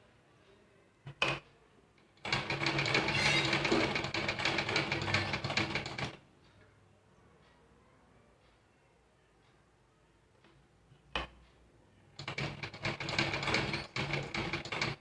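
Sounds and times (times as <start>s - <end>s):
sewing machine stitching fabric: 2.2s - 6.2s, 12.2s - 15.0s.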